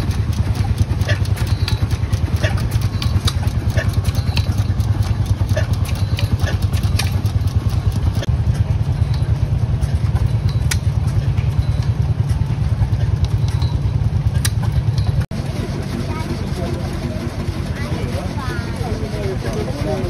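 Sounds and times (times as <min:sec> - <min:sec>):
machinery clicks: 0:00.0 - 0:20.0
stationary engine pulsing: 0:00.0 - 0:20.0.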